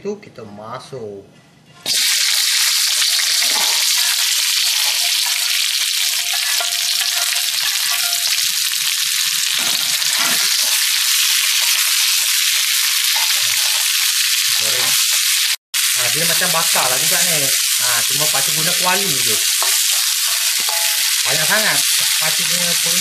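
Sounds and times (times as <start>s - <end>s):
food sizzling in a wok: 1.9s - 23.0s
spatula stirring: 3.1s - 8.6s, 18.3s - 23.0s.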